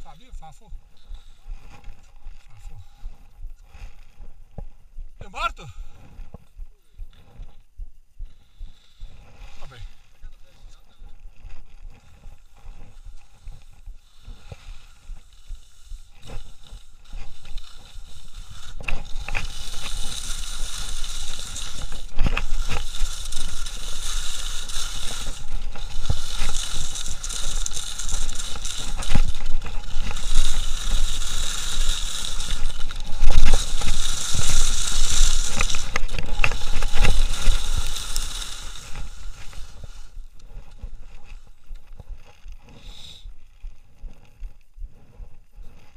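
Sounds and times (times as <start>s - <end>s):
skis scraping over snow: 0.0s - 7.7s, 8.3s - 45.9s
ski edges clicking: 10.4s - 45.2s.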